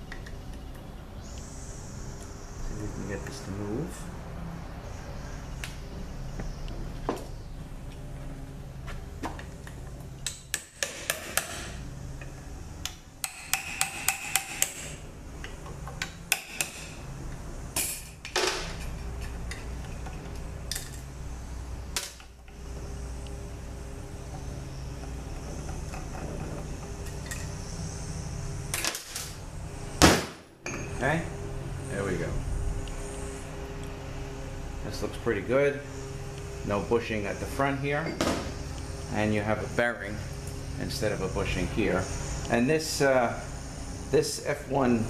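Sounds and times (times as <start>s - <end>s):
steady low hum: 0.0s - 45.0s
metal clank: 30.6s - 31.0s.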